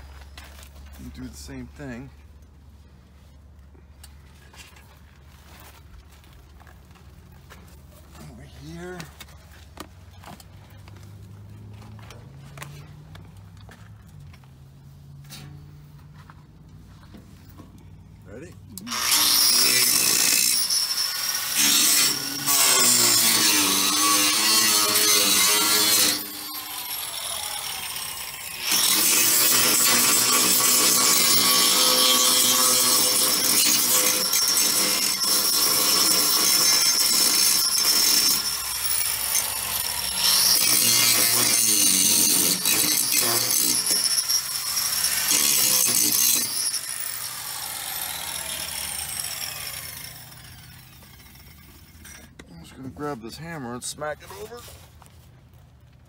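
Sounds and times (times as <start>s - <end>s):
angle grinder grinding steel: 18.7s - 52.6s.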